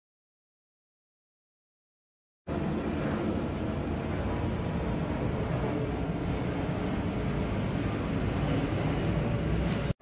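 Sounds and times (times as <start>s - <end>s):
forge blower rushing rumble: 2.5s - 10.0s.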